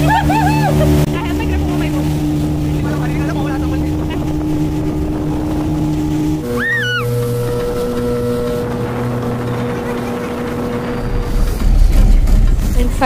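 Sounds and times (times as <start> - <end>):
high rising and falling cry: 0.0 - 0.9, 6.4 - 7.3
rushing water and wind: 0.0 - 13.0
speedboat engine humming: 0.0 - 13.0.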